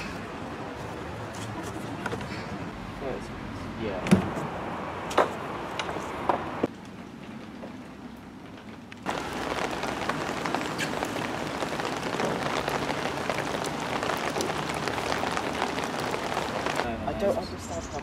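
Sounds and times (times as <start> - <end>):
steady rain: 4.5 - 17.7.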